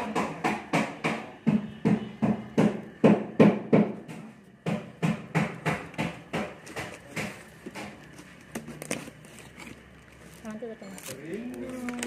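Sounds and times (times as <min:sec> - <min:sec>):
hammering knocks: 0:00.0 - 0:08.1.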